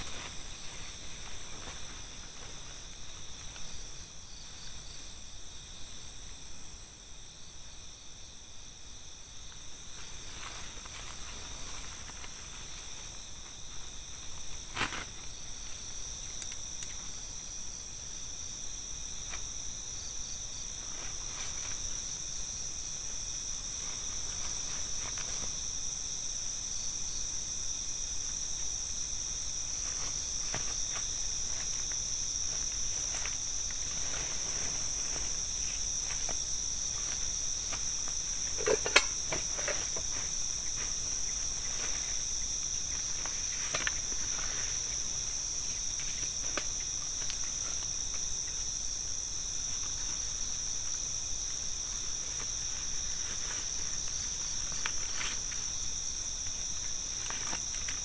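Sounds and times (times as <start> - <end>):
night insects trilling: 0.0 - 58.0
tent rustling and clicking: 10.0 - 17.1, 23.6 - 25.7, 29.6 - 48.8, 49.6 - 55.8, 56.4 - 58.0.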